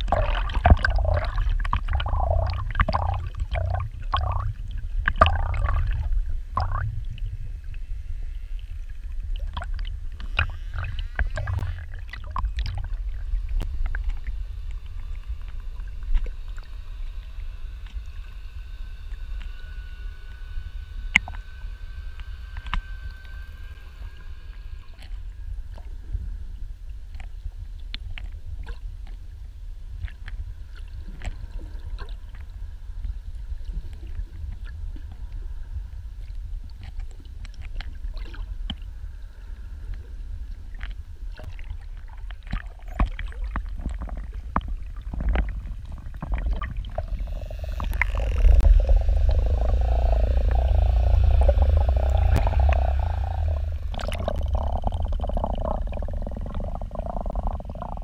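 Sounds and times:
warbling underwater sound: 0:00.0 - 0:26.3, 0:40.6 - 0:58.0
muffled underwater rumble: 0:00.0 - 0:58.0.

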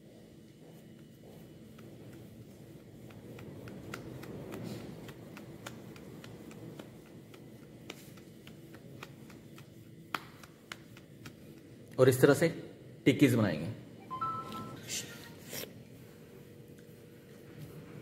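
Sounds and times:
hands patting mashed potato: 0:00.8 - 0:11.8.

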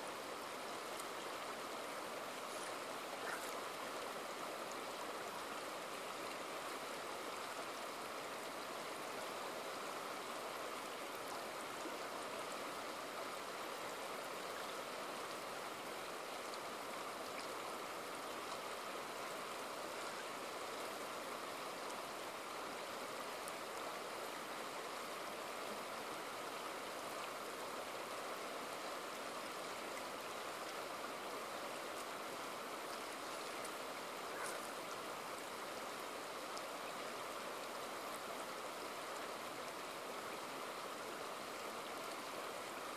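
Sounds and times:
river running over rocks: 0:00.0 - 0:42.9.

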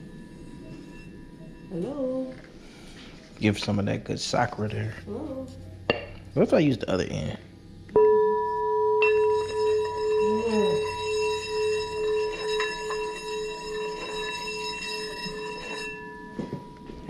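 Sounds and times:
singing bowl ringing: 0:00.0 - 0:03.0, 0:07.9 - 0:17.0.

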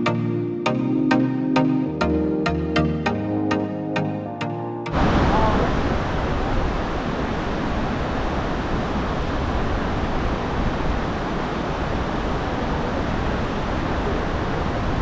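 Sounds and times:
waterfall and river rushing: 0:04.9 - 0:15.0.

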